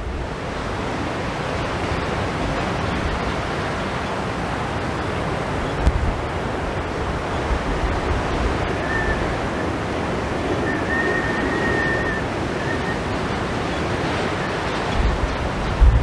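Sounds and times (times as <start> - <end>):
surf breaking on rocks: 0.0 - 16.0
wind rumbling on microphone: 0.0 - 16.0
faint thin whistle: 8.8 - 9.6, 10.6 - 13.1.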